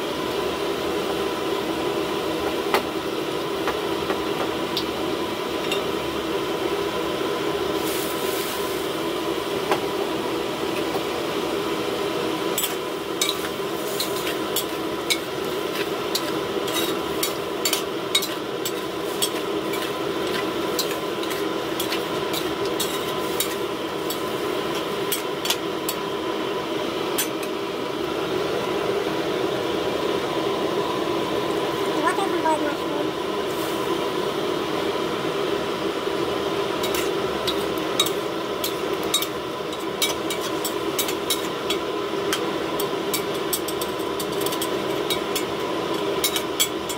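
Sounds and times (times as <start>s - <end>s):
kitchen hum: 0.0s - 46.9s
metal spatula scraping a wok: 12.6s - 25.6s.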